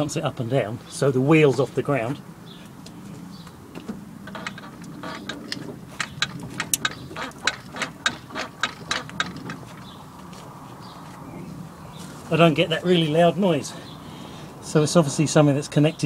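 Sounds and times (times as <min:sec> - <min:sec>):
suspension clicking and ticking: 0:02.7 - 0:10.5.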